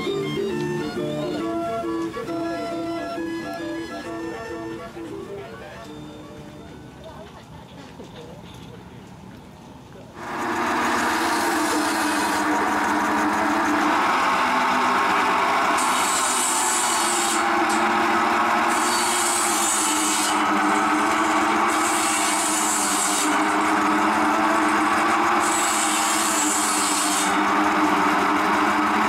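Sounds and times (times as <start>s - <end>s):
saw and belt drive droning: 10.2s - 29.0s
saw blade rasping through wood: 10.2s - 29.0s.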